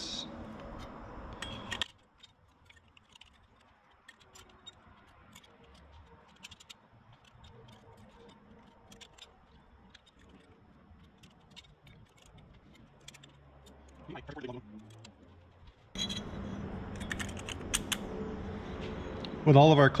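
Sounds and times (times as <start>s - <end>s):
light clicks of clutch plates: 0.5s - 16.0s.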